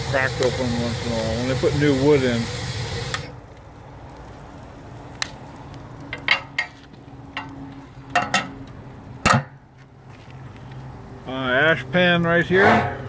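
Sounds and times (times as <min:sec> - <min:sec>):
metal clanks and clinks: 0:08.1 - 0:08.6, 0:12.6 - 0:13.0.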